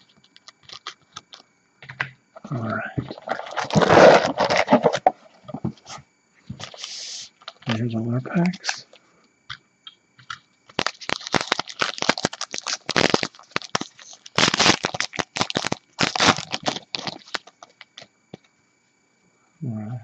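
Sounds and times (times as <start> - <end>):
wrapper crinkling: 0.0 - 1.4, 3.2 - 5.0, 10.7 - 18.1
wrapper tearing: 0.4 - 1.4, 3.2 - 5.0, 10.7 - 18.0.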